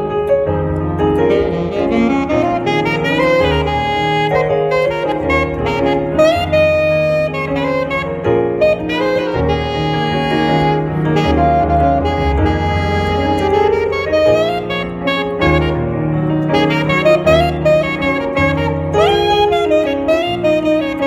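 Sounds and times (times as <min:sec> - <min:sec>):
bass line: 0:00.0 - 0:21.0
piano chords: 0:00.0 - 0:21.0
saxophone melody: 0:00.0 - 0:21.0.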